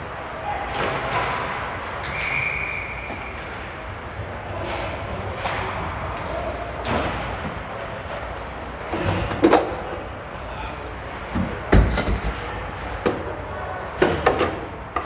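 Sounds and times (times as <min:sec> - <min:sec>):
hockey sticks and puck clacking: 0:00.6 - 0:09.9.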